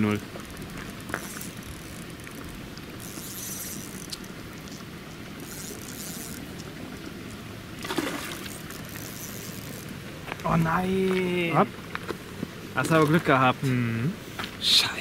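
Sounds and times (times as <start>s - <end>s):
water splashing and trickling: 0.0s - 11.7s
fish splash: 7.8s - 8.9s.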